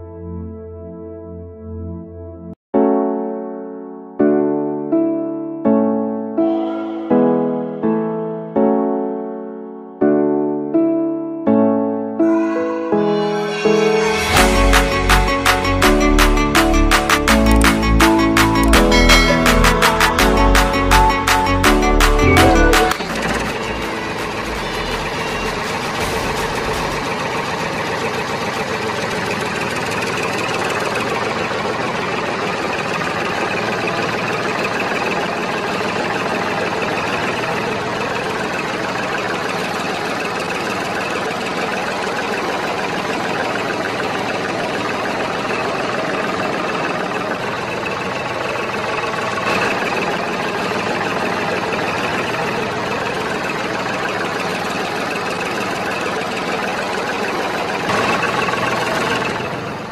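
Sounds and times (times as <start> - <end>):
small engine idling: 14.6 - 59.9.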